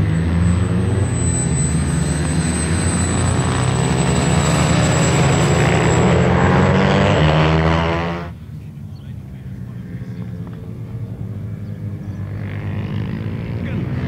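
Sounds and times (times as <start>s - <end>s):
model jet turbine engines: 0.0s - 6.7s.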